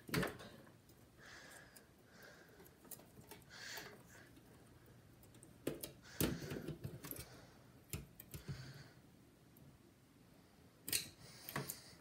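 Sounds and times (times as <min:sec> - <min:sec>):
rustling with small clicks: 0:02.5 - 0:08.6.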